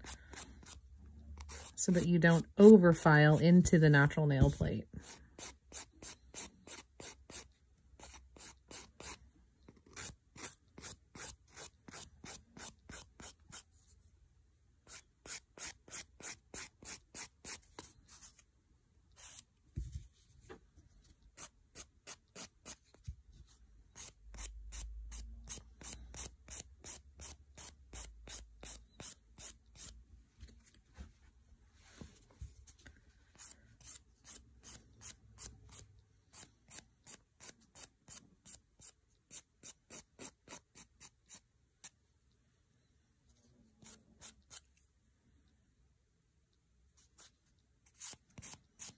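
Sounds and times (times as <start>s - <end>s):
nail file rasping: 0.0s - 0.8s, 1.4s - 2.4s, 9.8s - 13.7s, 24.0s - 30.0s.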